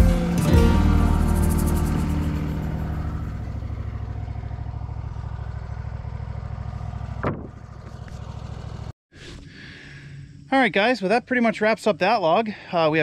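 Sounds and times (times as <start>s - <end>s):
music: 0.0s - 3.3s
engine idling: 0.0s - 8.9s
rising whoosh: 0.0s - 8.9s.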